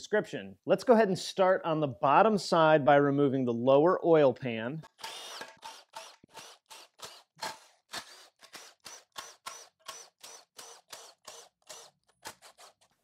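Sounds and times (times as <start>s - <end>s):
impact driver trigger bursts: 5.0s - 12.7s.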